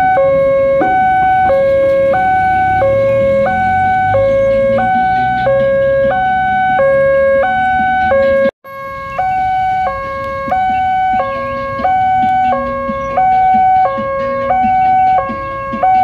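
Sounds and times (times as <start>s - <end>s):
level crossing two-tone alarm: 0.0s - 16.0s.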